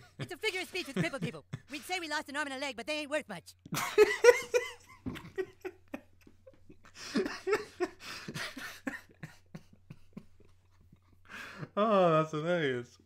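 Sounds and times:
man laughing hard: 3.7 - 11.6.

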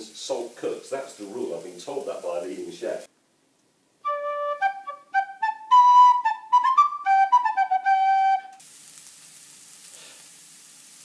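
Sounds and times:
food sizzling in a frying pan: 0.0 - 3.1, 8.6 - 11.0
instrumental tune: 4.0 - 8.6.

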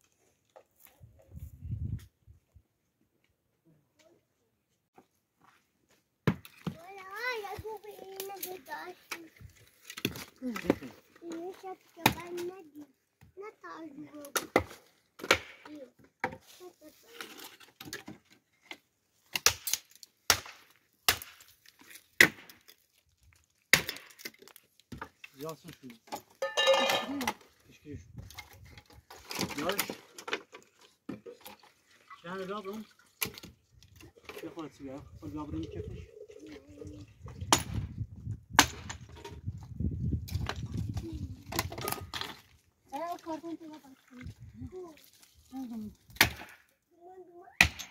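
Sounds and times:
rustling and handling noise: 4.7 - 13.8.

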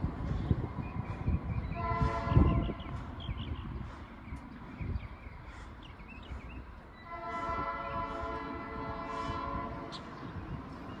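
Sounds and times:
locomotive air horn blast: 1.8 - 2.6, 7.1 - 10.0.

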